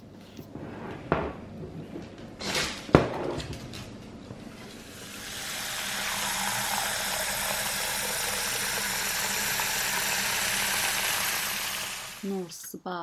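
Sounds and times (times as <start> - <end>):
tap water running into a metal pot: 5.0 - 12.2.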